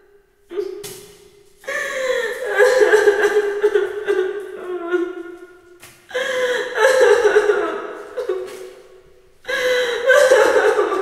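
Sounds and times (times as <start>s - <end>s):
gasping breath: 1.6s - 2.4s, 6.1s - 6.8s, 9.5s - 10.1s
woman crying: 1.7s - 8.8s, 9.5s - 11.0s.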